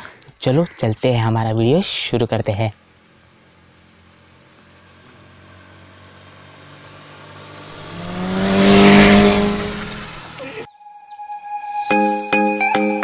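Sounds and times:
motorbike passing on wet road: 2.8s - 10.7s.

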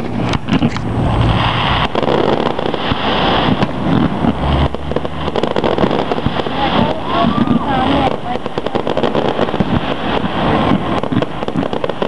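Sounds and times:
fireworks cracking and popping: 0.0s - 12.0s
steady noisy din: 0.0s - 12.0s.

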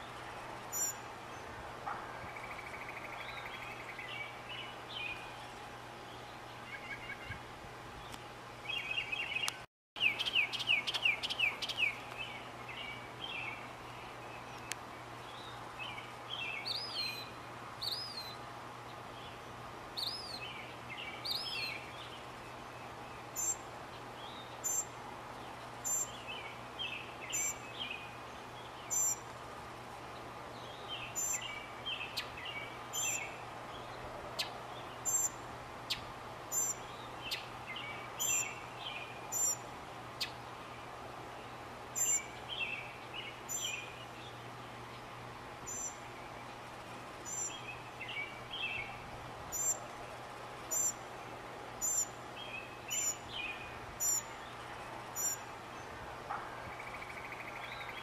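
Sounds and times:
mockingbird singing: 34.4s - 39.6s, 42.0s - 44.4s, 45.7s - 46.4s, 47.3s - 49.8s, 51.8s - 55.4s.

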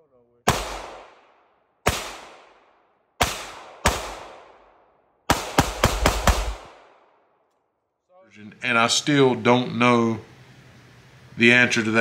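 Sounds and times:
pistol shots: 0.4s - 7.2s.

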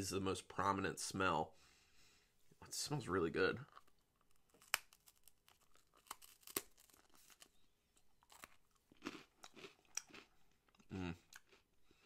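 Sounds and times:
chewing crunches: 3.7s - 12.0s
rice cracker cracking when bitten: 4.2s - 7.5s.

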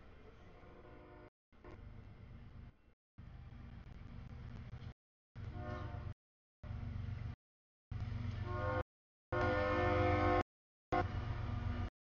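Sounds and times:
locomotive air horn: 5.5s - 6.2s, 8.4s - 11.2s.

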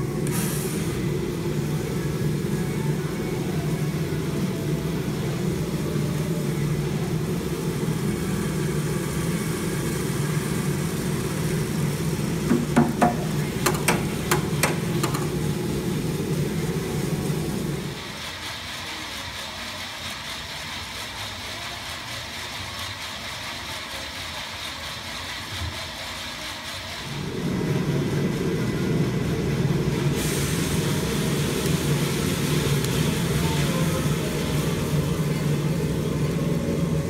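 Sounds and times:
coffee beans draining into drum: 0.0s - 18.4s, 27.1s - 37.0s
coffee roaster humming: 0.0s - 37.0s
sharp knocks: 12.5s - 15.2s.

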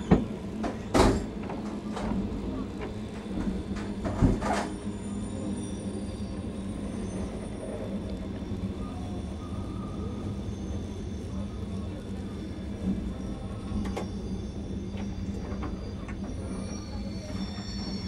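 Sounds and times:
train running gear clunks: 0.0s - 4.9s, 13.1s - 18.0s
train interior low hum: 0.0s - 18.0s.

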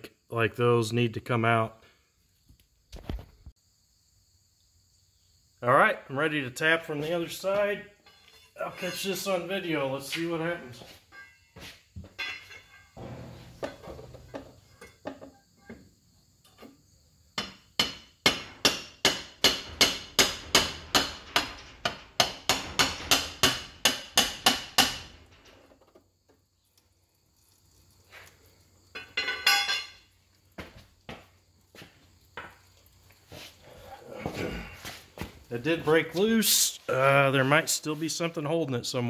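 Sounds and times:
hammer striking metal: 17.4s - 25.2s.

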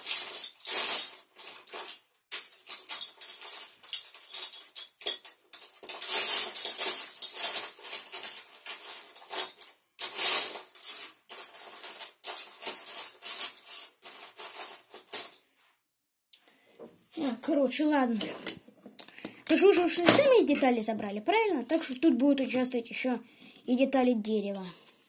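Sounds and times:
plastic bricks clattering: 0.0s - 15.4s.

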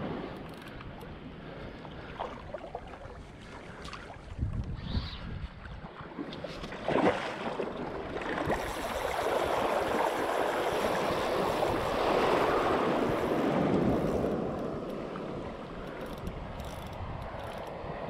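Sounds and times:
shallow surf washing: 6.7s - 15.9s.

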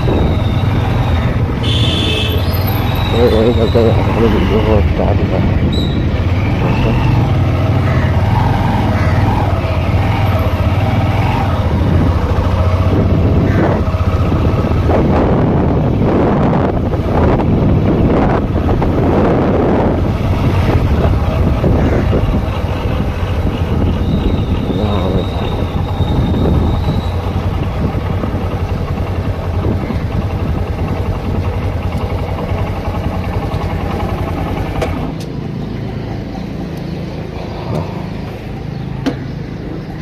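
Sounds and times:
motorcycle engine running: 0.0s - 40.0s
wind rushing over microphone: 11.0s - 31.4s.

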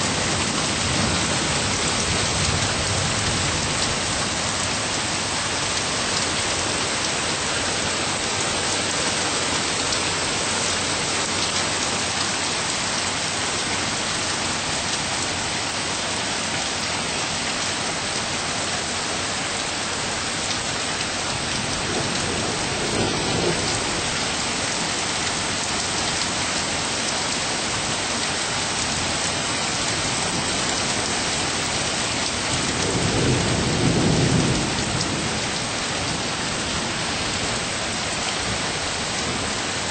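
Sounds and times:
steady rain falling: 0.0s - 39.9s
thunder rumbling: 21.3s - 24.9s, 32.0s - 36.7s.

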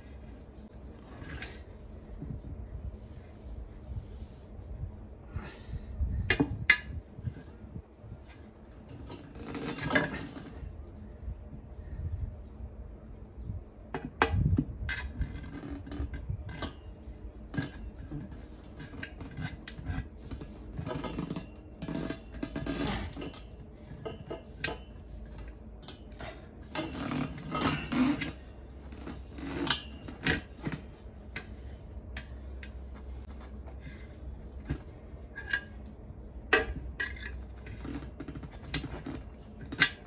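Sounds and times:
tyre levers clinking on rim: 8.3s - 10.6s, 17.5s - 31.5s, 36.5s - 40.0s.

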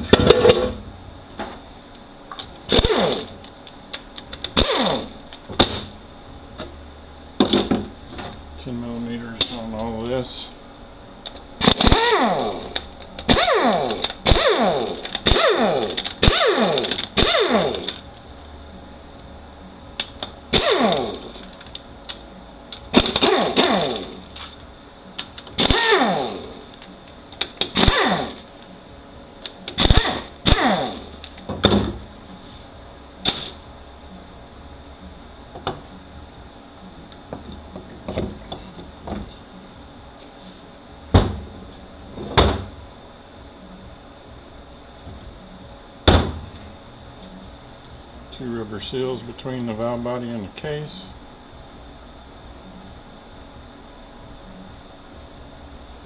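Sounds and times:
power ratchet whirring: 2.7s - 3.4s, 4.4s - 5.4s, 11.6s - 18.0s, 20.5s - 21.7s, 22.9s - 24.6s, 25.5s - 26.9s, 27.6s - 28.5s, 29.7s - 31.4s.

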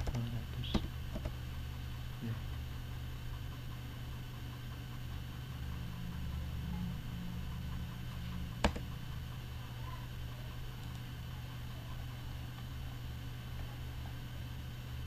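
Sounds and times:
low background hum and hiss: 0.0s - 15.0s
computer mouse click: 8.6s - 8.9s.

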